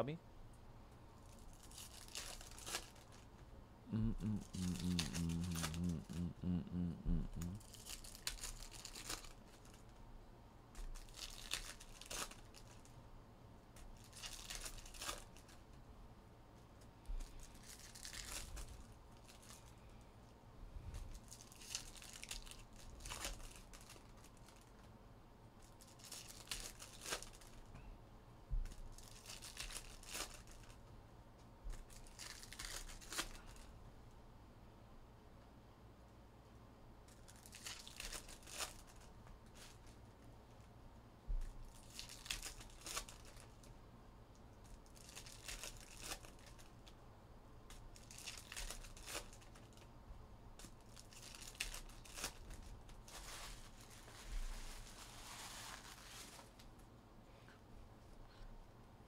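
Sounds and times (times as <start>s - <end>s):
foil wrappers tearing and crinkling: 1.2s - 3.3s, 7.4s - 10.0s, 10.8s - 12.9s, 14.0s - 15.7s, 17.4s - 19.6s, 21.2s - 24.8s, 25.6s - 27.6s, 28.7s - 30.8s, 31.7s - 33.7s, 37.1s - 40.2s, 41.7s - 43.7s, 44.6s - 46.8s, 47.7s - 49.9s, 50.6s - 56.6s.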